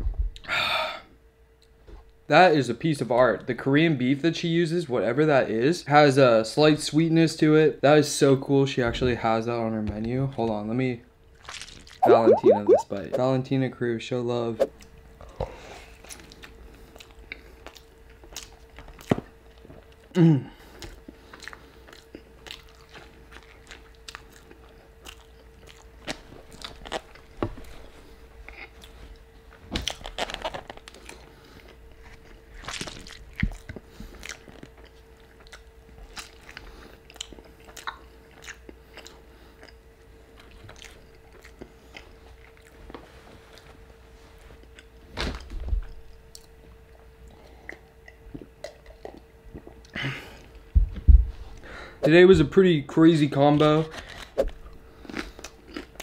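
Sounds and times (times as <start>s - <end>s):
short falling pitched sound: 12.0s - 12.9s
wet chewing with mouth clicks: 20.8s - 27.2s, 33.0s - 39.8s, 40.4s - 43.7s, 47.4s - 50.0s.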